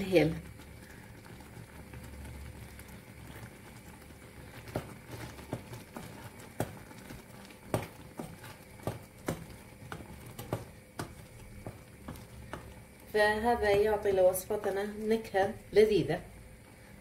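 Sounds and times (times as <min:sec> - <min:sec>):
low steady hum: 0:00.0 - 0:17.0
wooden spoon tapping saucepan: 0:07.6 - 0:12.8.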